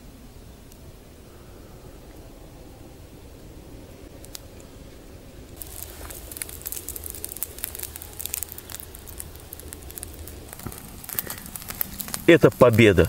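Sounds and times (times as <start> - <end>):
campfire embers crackling: 0.1 - 13.0.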